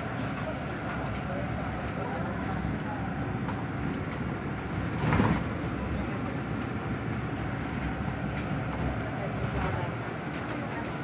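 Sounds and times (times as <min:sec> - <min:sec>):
bus engine and road noise: 0:00.0 - 0:11.0.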